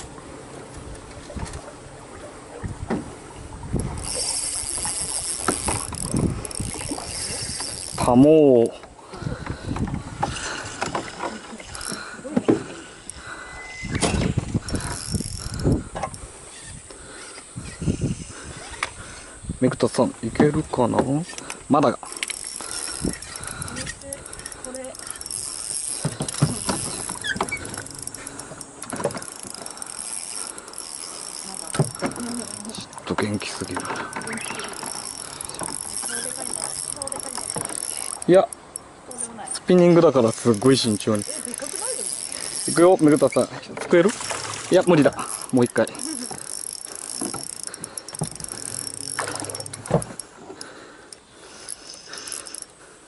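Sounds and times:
high insect drone: 3.7s - 53.0s
fishing reel clicks and knocks: 3.8s - 17.8s, 21.2s - 52.8s
short squeaks: 13.4s - 15.6s, 16.5s - 18.9s, 22.3s - 38.8s, 40.5s - 44.6s, 45.2s - 50.3s.

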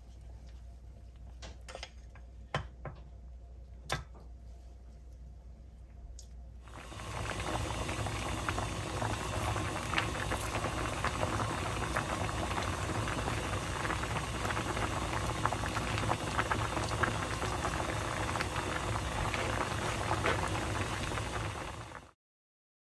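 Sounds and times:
stew boiling and bubbling: 6.2s - 22.2s.

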